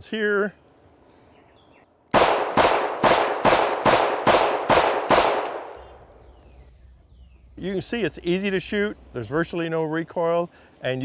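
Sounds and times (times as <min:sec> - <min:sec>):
revolver gunshots echoing: 0:02.1 - 0:05.8.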